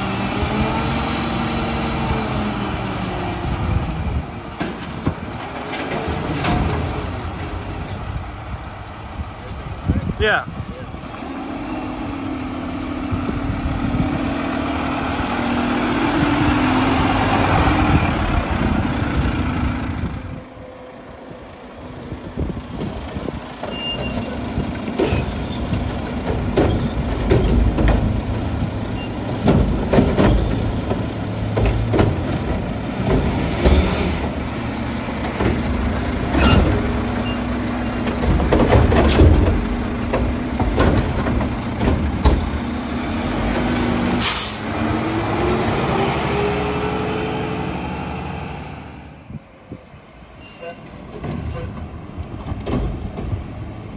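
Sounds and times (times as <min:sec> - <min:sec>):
engine revving: 0:00.0 - 0:03.2, 0:11.0 - 0:18.8, 0:42.5 - 0:49.2
truck engine and hydraulics humming: 0:00.0 - 0:53.9.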